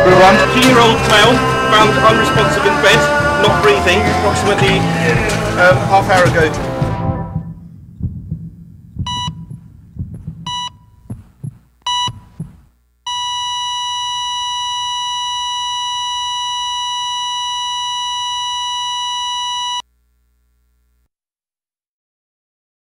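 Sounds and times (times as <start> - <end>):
low thuds: 4.6 - 12.8
short electronic beeps: 9.1 - 9.5, 10.5 - 10.9, 11.9 - 12.3, 13.1 - 19.8
continuous flatline tone: 13.0 - 21.0.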